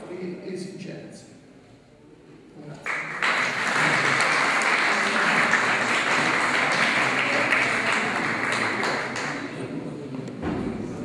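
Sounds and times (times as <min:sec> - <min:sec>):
audience applauding: 0:02.8 - 0:09.6.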